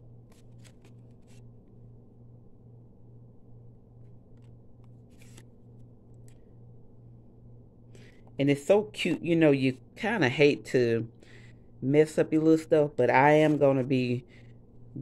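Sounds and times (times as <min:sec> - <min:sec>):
low hum: 0:00.0 - 0:15.0
paper cards rustling: 0:00.2 - 0:01.8, 0:04.0 - 0:06.4, 0:13.4 - 0:13.9.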